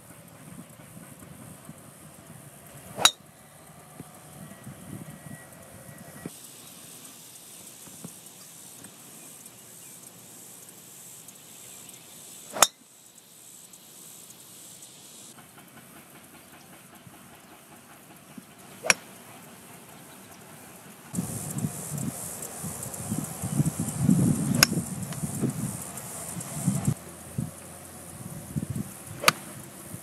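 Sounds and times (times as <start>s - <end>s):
faint outdoor hiss: 0.0s - 30.0s
golf club striking ball: 3.0s - 3.2s, 24.5s - 25.2s, 29.2s - 29.5s.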